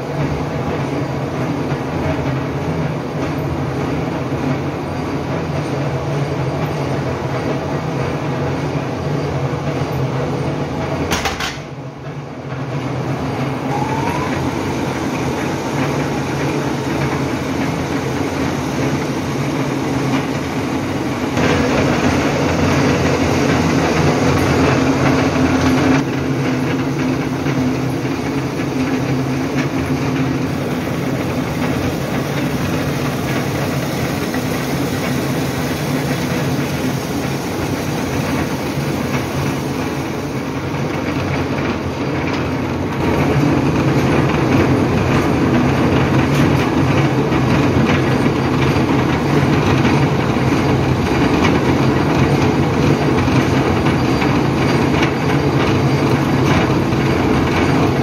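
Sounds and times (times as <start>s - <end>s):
factory machinery rattling drone: 0.0s - 58.0s.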